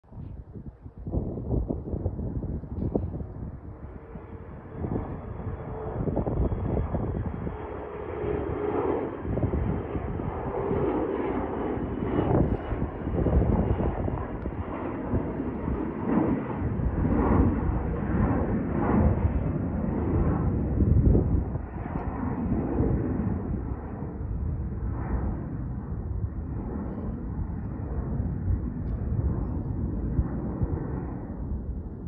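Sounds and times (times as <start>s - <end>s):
jet engine noise: 0.1s - 32.0s.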